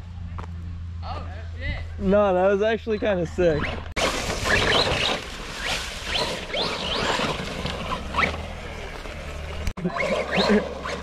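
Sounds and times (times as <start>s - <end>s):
electric toy truck motor whining: 6.1s - 8.6s, 9.6s - 11.0s.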